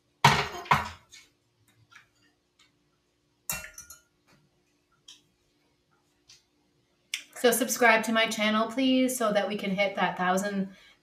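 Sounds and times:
utensils knocking against pot: 3.5 - 4.0
utensils clinking: 3.5 - 4.1.

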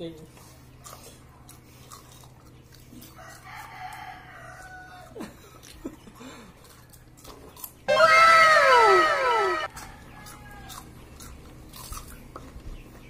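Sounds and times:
faint rooster crowing: 3.0 - 5.2, 7.9 - 10.9.

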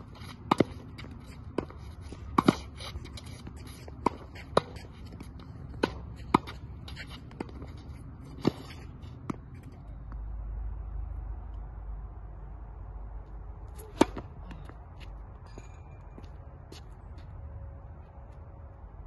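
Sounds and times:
rackets striking tennis ball: 0.0 - 10.3, 13.6 - 16.1.

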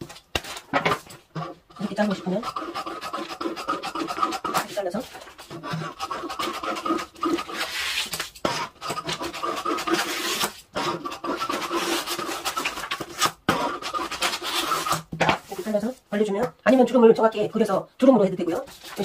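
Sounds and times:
scissors cutting stiff paper: 1.8 - 15.7.

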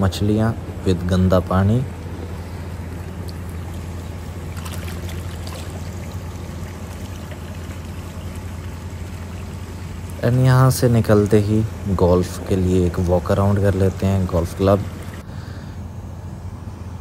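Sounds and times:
low hum: 0.0 - 17.0
fish splashing water: 3.0 - 10.2.

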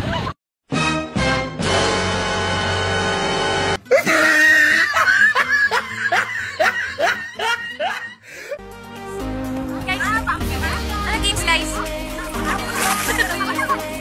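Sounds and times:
laughter: 4.7 - 8.2, 12.5 - 14.0.

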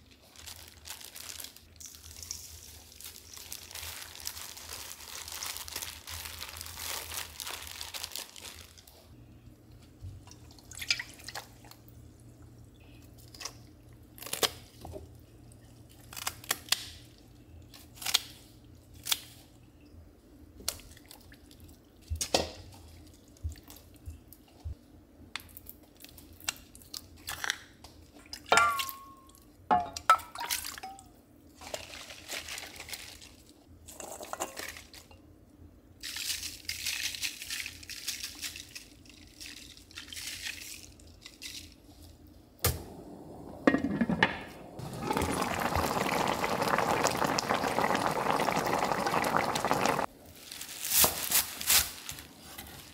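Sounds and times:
water poured into pan: 43.3 - 50.1.

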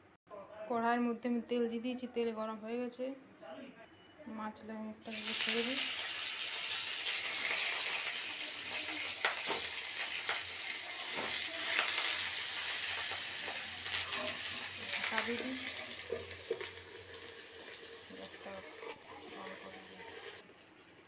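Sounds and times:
fish parcels sizzling in oil: 5.0 - 21.0.

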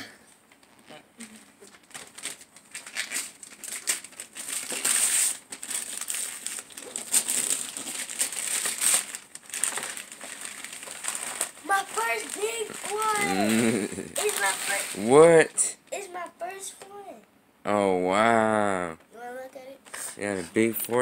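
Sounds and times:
wrapping paper tearing and crumpling: 0.6 - 15.3.

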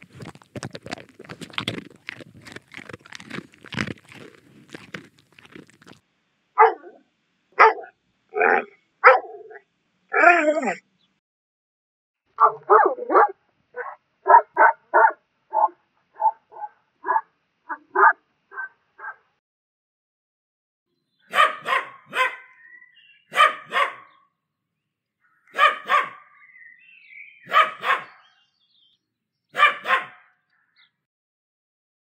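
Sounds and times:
large dog barking: 6.6 - 7.0, 7.6 - 10.2, 12.4 - 19.2, 21.3 - 22.5, 23.3 - 24.1, 25.5 - 26.3, 27.5 - 28.3, 29.6 - 30.3
small dog barking: 6.6 - 7.0, 7.6 - 9.6, 12.4 - 19.2, 21.3 - 22.5, 23.3 - 24.2, 25.5 - 26.2, 27.5 - 28.3, 29.6 - 30.3.

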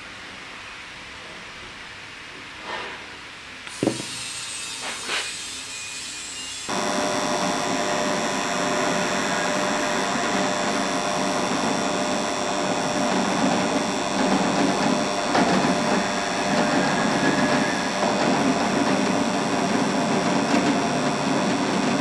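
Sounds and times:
drill press boring into wood: 3.7 - 5.3, 6.6 - 22.0.

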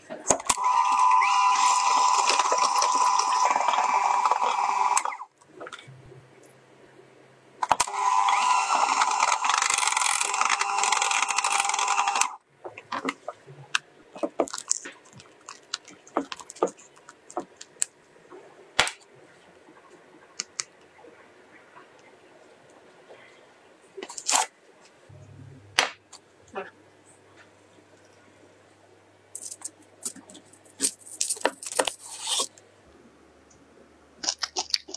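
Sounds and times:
electric hand mixer running: 0.5 - 5.3, 7.8 - 12.4.

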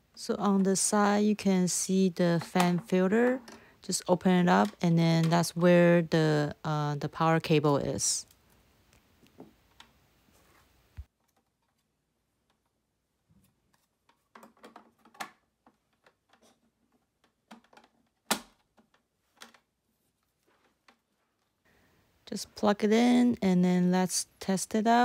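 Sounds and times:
plastic clicks and knocks: 14.0 - 19.7.

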